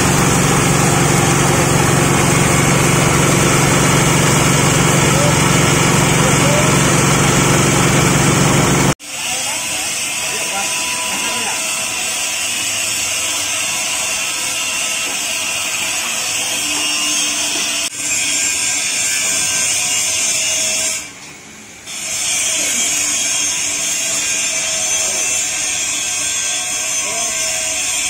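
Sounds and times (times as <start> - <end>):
wood grinder running: 0.0 - 20.9, 22.0 - 28.0.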